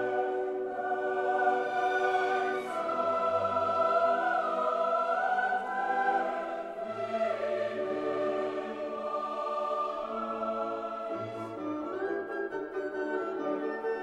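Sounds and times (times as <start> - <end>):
choir singing held chords: 0.0 - 12.1
orchestra playing: 5.8 - 14.0.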